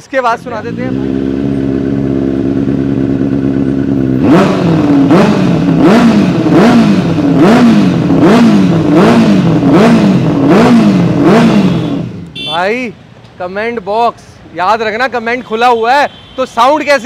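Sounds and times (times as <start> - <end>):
motorcycle engine revving: 0.4 - 12.6.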